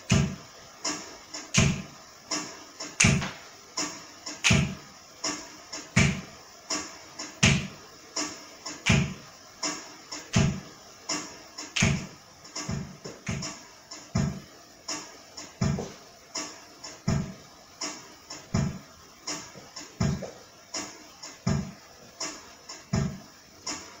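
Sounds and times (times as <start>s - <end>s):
slow deep drum beat: 0.0s - 0.4s, 1.5s - 1.9s, 3.0s - 6.3s, 7.3s - 7.8s, 8.7s - 9.2s, 10.2s - 16.0s, 17.0s - 17.4s, 18.2s - 20.4s, 21.4s - 21.8s, 22.9s - 23.3s.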